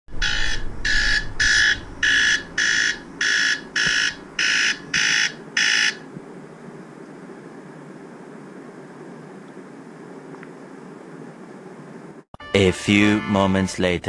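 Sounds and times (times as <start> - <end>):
smartphone alarm beeping: 0.2 - 6.0.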